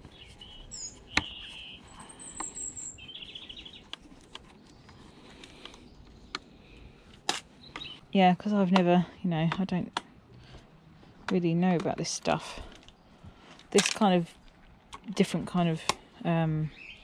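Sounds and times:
small birds chirping: 0.0 - 9.0, 16.4 - 17.0.

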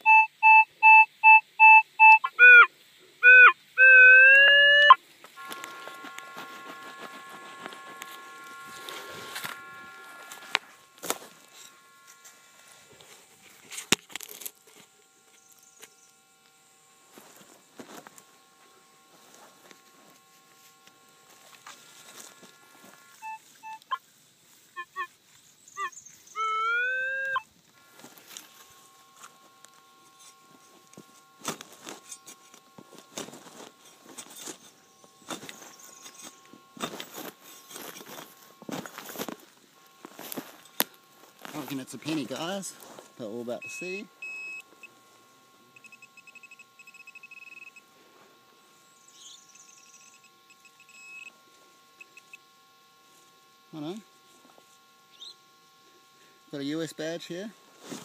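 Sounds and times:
metal detector beeps: 0.0 - 24.0, 24.7 - 25.1, 25.7 - 47.9, 49.0 - 51.4, 52.0 - 52.5
metal detector tone: 0.0 - 24.0, 24.7 - 25.1, 25.7 - 47.9, 48.9 - 57.3
soil rustling: 5.0 - 26.4, 27.3 - 45.0, 57.6 - 58.0
digging tool scraping soil: 30.0 - 44.0.

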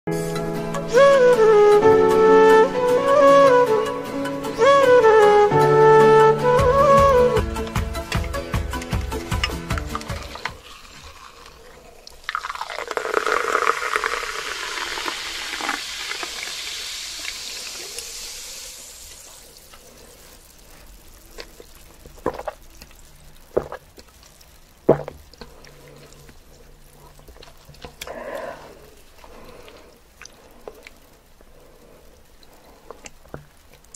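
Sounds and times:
liquid pouring: 8.0 - 31.2.

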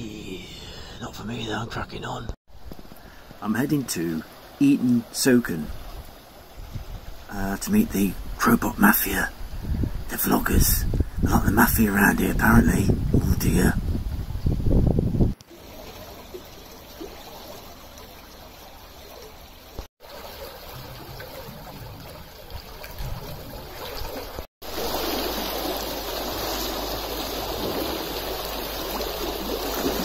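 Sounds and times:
water rushing and churning: 2.5 - 10.8, 15.3 - 30.0.

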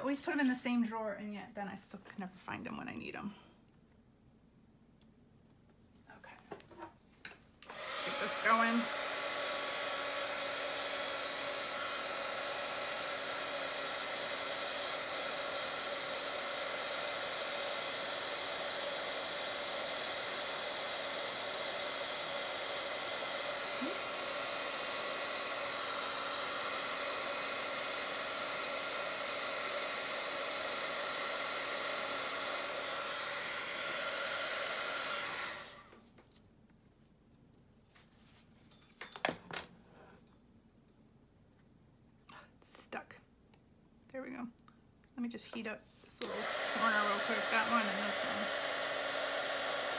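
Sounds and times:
heat gun blowing: 7.6 - 36.1, 46.2 - 49.9.

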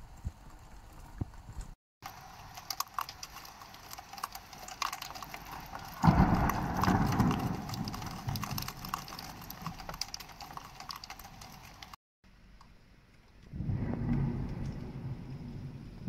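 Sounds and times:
steady hiss of rain: 0.0 - 16.0
raindrops ticking on a window: 1.2 - 12.0, 12.6 - 16.0
low rumble: 13.5 - 16.0.

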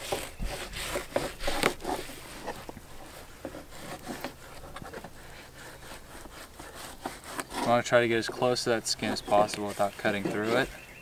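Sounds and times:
knife scraping fish skin: 9.0 - 10.8.

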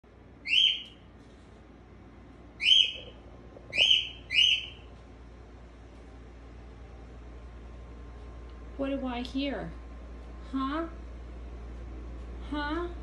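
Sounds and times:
cockatiel calling: 0.4 - 1.0, 2.6 - 4.9.

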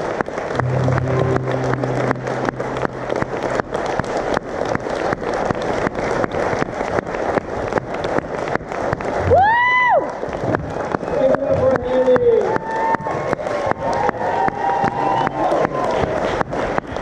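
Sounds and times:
audience applauding: 0.0 - 17.0
acoustic guitar chord: 0.6 - 4.5.

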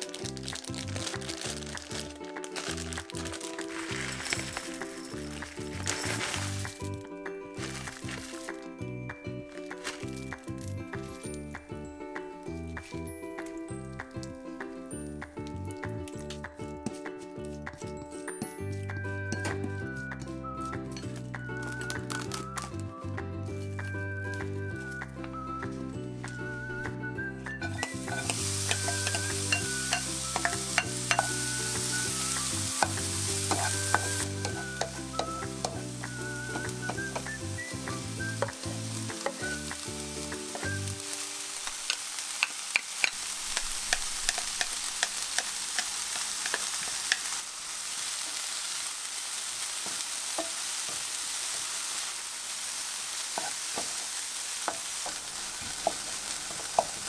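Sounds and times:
vegetables sizzling in frying pan: 0.0 - 8.9, 9.5 - 11.2, 23.6 - 57.0.

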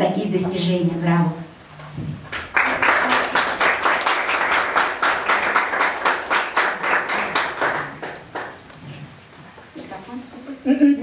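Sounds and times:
group of people applauding: 2.2 - 8.8.

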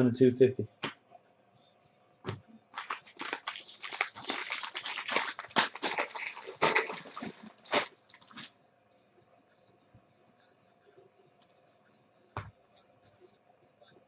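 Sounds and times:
foil wrapper crinkling: 2.7 - 8.5.

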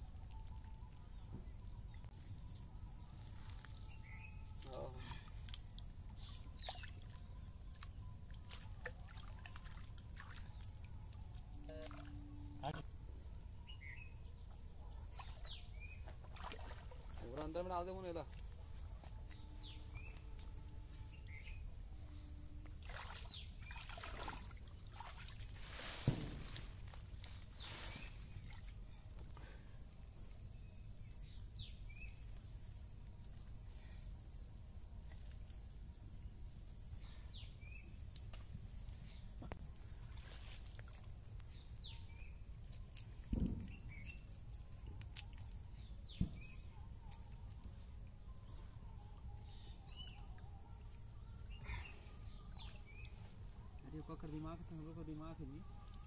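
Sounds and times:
water splashing: 16.1 - 17.5, 22.8 - 26.7.

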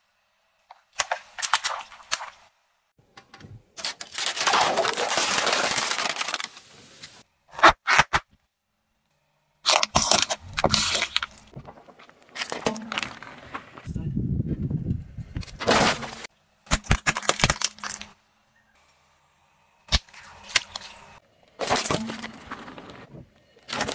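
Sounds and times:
plastic crushed under car tyre: 3.9 - 6.7, 15.6 - 18.1.

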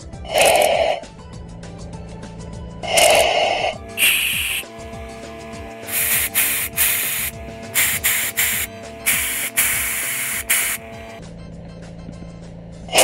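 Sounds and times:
compressed air blow gun hissing: 3.3 - 11.2.

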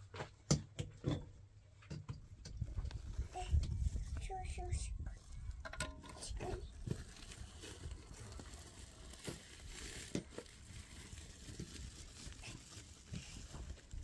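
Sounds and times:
plastic sack crinkling: 6.7 - 14.0.

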